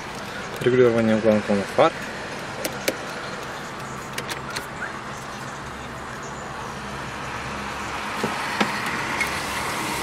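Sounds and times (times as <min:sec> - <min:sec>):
low vehicle rumble and hiss: 0:00.0 - 0:10.0
dashboard control clicks: 0:02.6 - 0:04.7.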